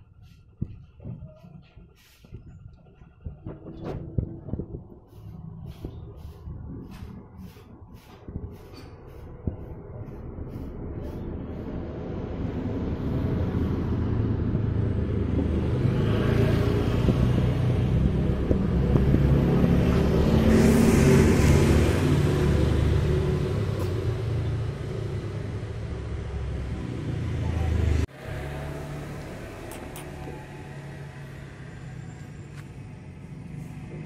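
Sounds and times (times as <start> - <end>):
vehicle engine passing by: 2.0 - 34.0.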